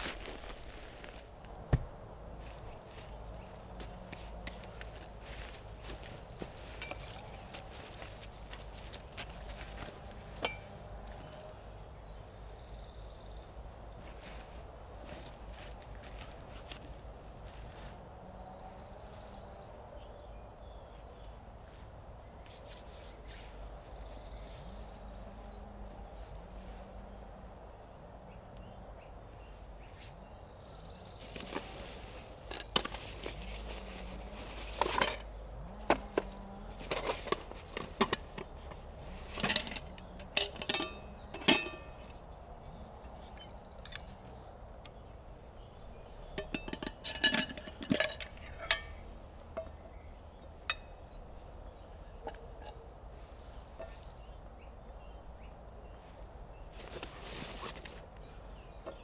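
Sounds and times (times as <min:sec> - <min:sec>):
faint outdoor background: 0:00.0 - 0:59.0
sharp clinks and knocks: 0:06.8 - 0:07.4, 0:10.4 - 0:10.9, 0:46.3 - 0:49.8.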